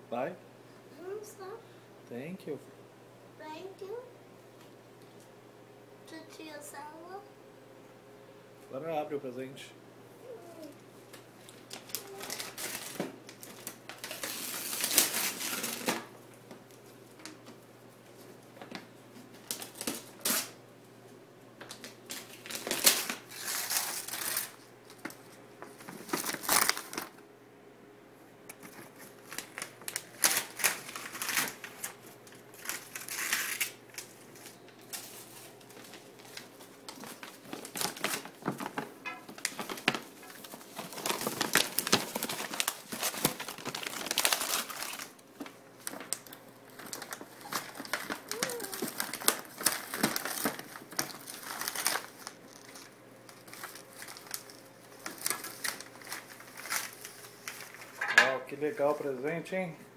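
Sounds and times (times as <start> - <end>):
wrapping paper tearing: 11.4 - 16.1, 19.4 - 20.6, 21.7 - 25.1, 25.7 - 27.2, 28.6 - 58.0.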